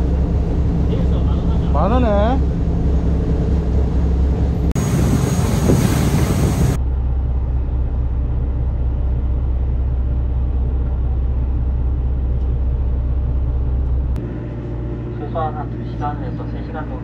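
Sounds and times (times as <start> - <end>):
rush of wind and water: 0.0 - 6.8
boat engine droning: 0.0 - 17.0.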